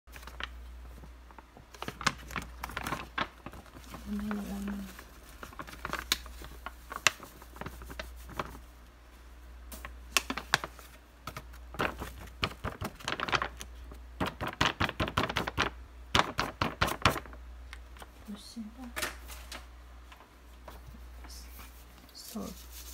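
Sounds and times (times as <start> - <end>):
packet crinkling: 0.1 - 8.7, 9.7 - 18.1
packet tapped and shaken: 1.6 - 8.6, 9.7 - 17.4.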